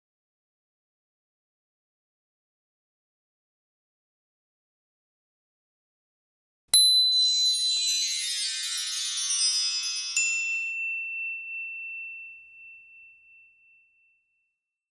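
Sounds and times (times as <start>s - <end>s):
shimmering chime tones: 6.8s - 14.0s
bright ding: 6.8s - 14.6s
high ringing tone: 6.8s - 14.6s.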